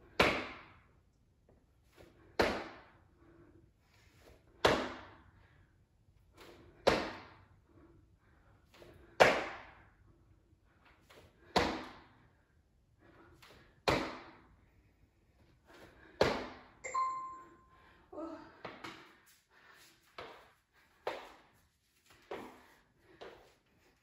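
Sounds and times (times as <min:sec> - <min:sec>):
short steady tone: 0:16.9 - 0:17.8.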